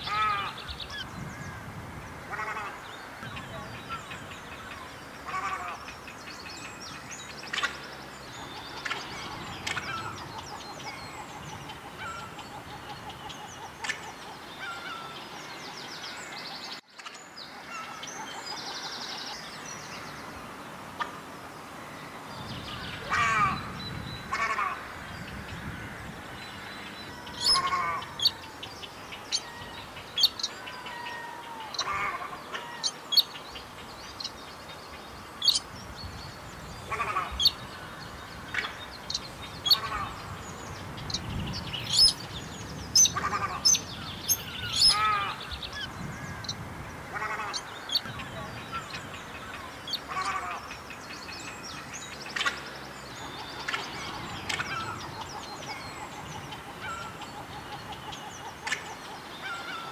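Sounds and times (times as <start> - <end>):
bird chattering calls: 27.3 - 28.5, 35.4 - 35.6, 41.0 - 46.6.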